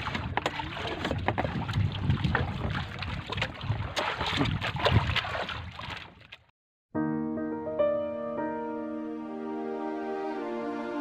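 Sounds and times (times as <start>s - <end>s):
water around a boat: 0.0s - 6.5s
wind: 0.0s - 6.5s.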